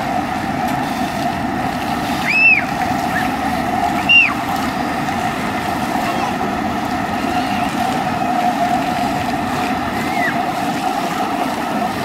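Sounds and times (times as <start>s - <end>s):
fountain jets spraying: 0.0s - 12.0s.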